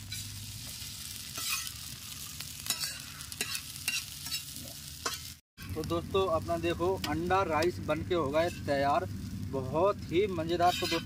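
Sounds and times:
food sizzling in a pan: 0:00.0 - 0:11.0
spatula scraping a pan: 0:01.3 - 0:01.9, 0:02.6 - 0:05.4, 0:10.5 - 0:11.0.

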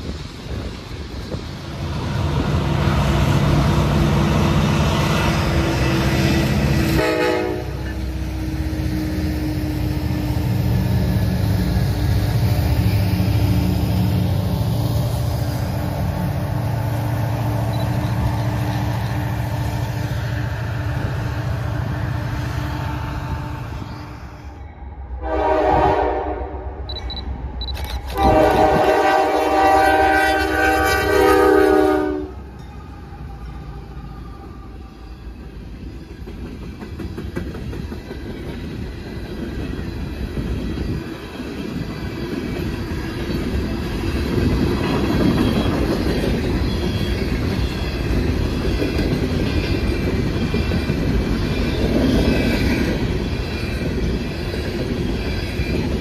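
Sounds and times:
locomotive horn blasts: 0:06.9 - 0:08.2, 0:25.2 - 0:26.8, 0:28.1 - 0:32.5.

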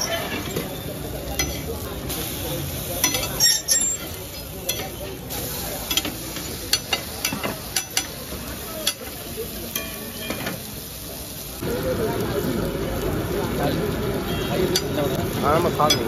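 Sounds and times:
metal spatula scraping griddle: 0:00.0 - 0:02.3, 0:03.0 - 0:08.2
food sizzling in oil on griddle: 0:00.0 - 0:16.0.

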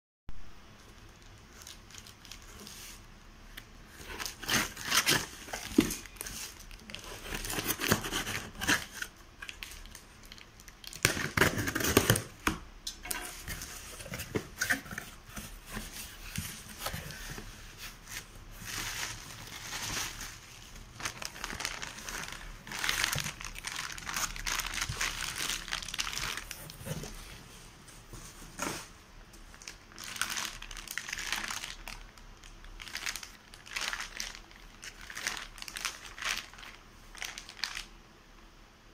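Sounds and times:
plastic packs crinkling: 0:01.0 - 0:27.3, 0:29.4 - 0:37.9
packing tape tearing: 0:04.0 - 0:12.4.

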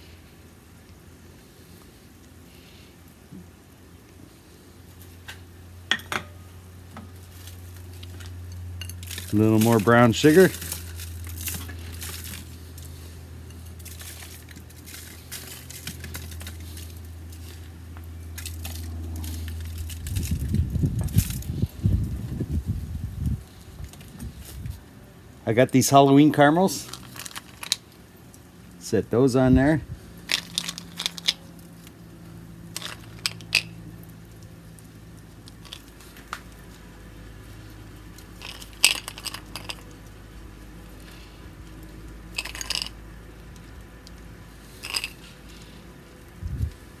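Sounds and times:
steady low hum: 0:00.0 - 0:47.0
sugar crinkling on foil: 0:07.1 - 0:22.0, 0:26.3 - 0:28.8, 0:30.2 - 0:32.1, 0:32.7 - 0:36.9, 0:37.5 - 0:41.3, 0:41.9 - 0:45.8.

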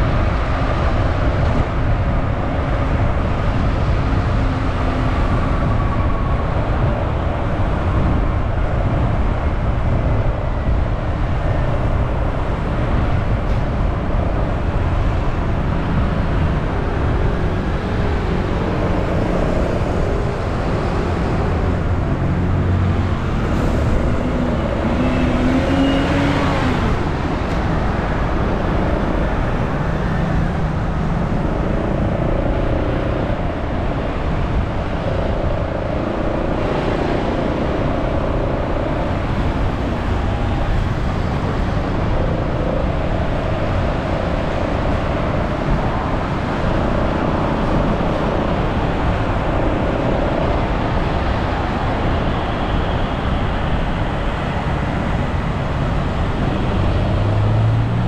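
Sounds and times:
road and traffic noise: 0:00.0 - 0:58.0.

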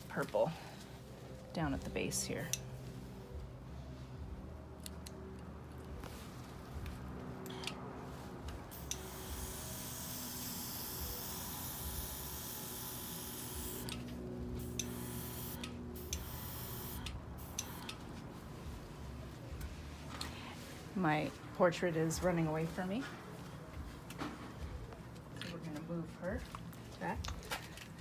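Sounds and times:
airbrush hissing: 0:08.7 - 0:13.8, 0:14.6 - 0:17.9.

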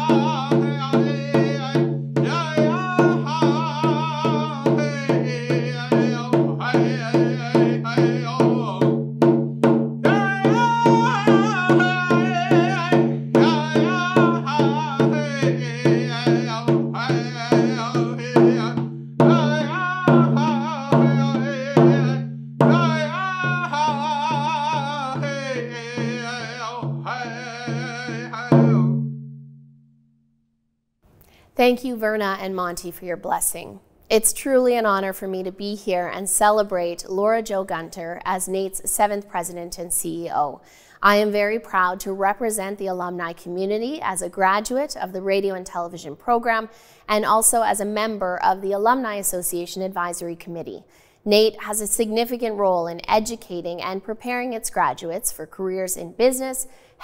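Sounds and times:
man singing: 0:00.0 - 0:09.0, 0:10.0 - 0:29.0
hand drum beat: 0:00.0 - 0:29.8.

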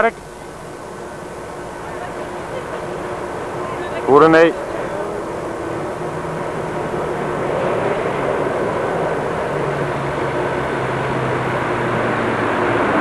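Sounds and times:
car engine humming: 0:00.0 - 0:13.0.

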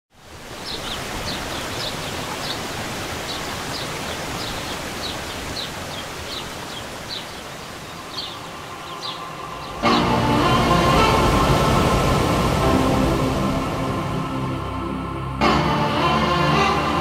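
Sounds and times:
waterfall rushing: 0:00.1 - 0:17.0
bird chirping: 0:00.6 - 0:10.2.

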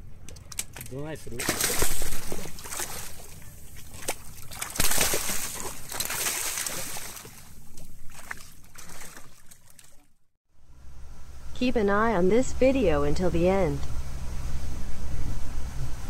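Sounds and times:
fish splashing in water: 0:01.3 - 0:10.1.

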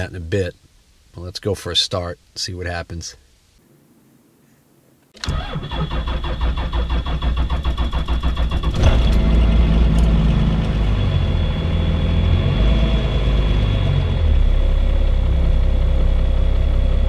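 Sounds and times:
diesel engine cranking: 0:05.2 - 0:14.6.

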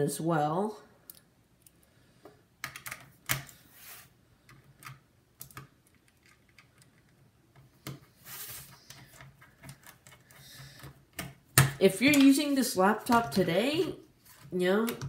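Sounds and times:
short scrape: 0:03.6 - 0:04.1, 0:08.1 - 0:08.8.

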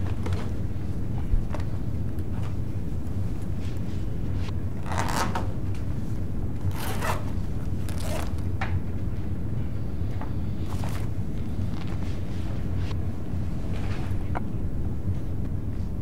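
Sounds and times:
low room hum: 0:00.0 - 0:16.0
backpack fabric rustling: 0:04.8 - 0:05.4, 0:06.6 - 0:08.4, 0:10.6 - 0:12.4.

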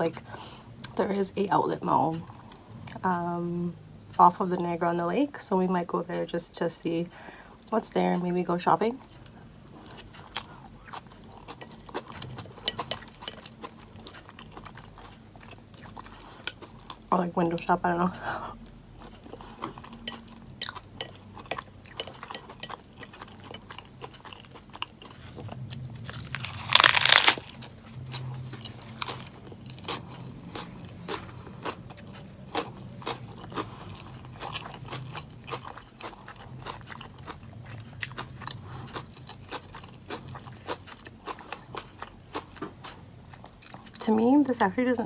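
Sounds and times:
chewing with wet crunching: 0:09.0 - 0:17.7, 0:18.5 - 0:44.6.

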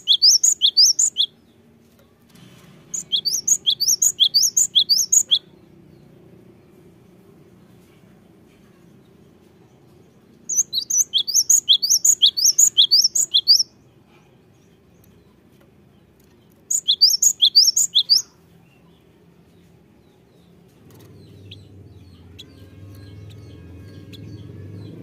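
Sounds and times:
bird singing whistled notes: 0:00.0 - 0:01.5, 0:02.9 - 0:05.5, 0:10.5 - 0:13.8, 0:16.7 - 0:18.9.

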